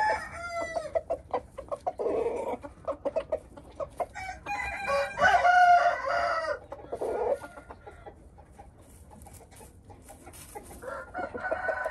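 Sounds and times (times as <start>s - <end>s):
rooster crowing: 0.0s - 0.9s, 4.1s - 6.6s, 10.8s - 11.9s.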